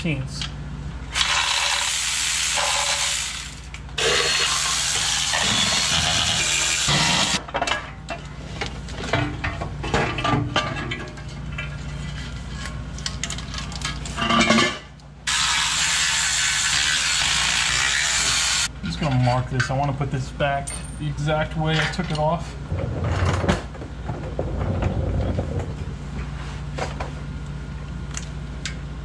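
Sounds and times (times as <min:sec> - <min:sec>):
electric ratchet buzzing: 0:01.1 - 0:07.4, 0:15.3 - 0:18.7.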